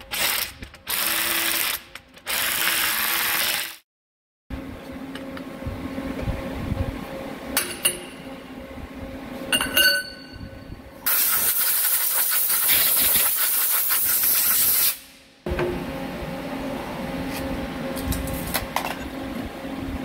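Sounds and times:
faint machine hum: 0:04.5 - 0:11.1, 0:15.4 - 0:20.0.

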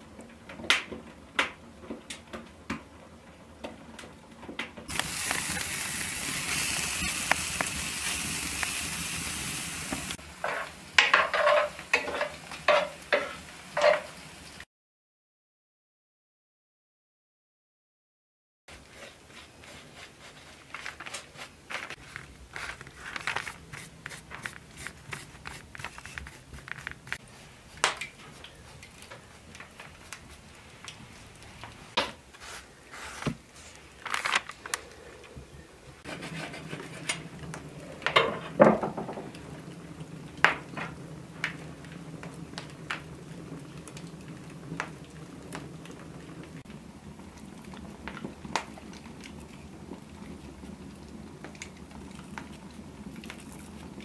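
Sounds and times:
paper rustling and crinkling: 0:18.8 - 0:30.8, 0:32.3 - 0:35.0.

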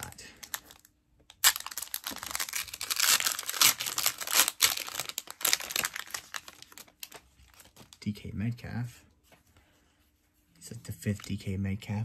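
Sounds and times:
foil wrapper crinkling: 0:00.0 - 0:08.1.

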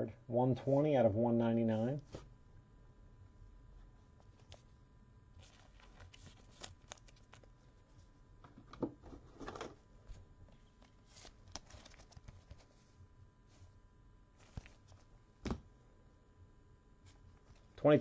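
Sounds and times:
plastic sleeve rustling: 0:05.4 - 0:08.1, 0:10.6 - 0:12.9.

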